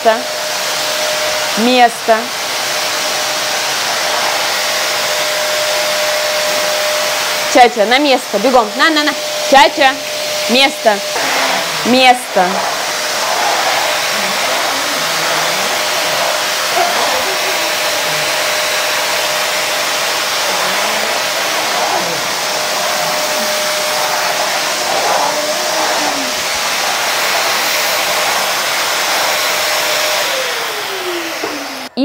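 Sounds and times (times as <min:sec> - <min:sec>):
vacuum cleaner running: 0:00.0 - 0:32.0.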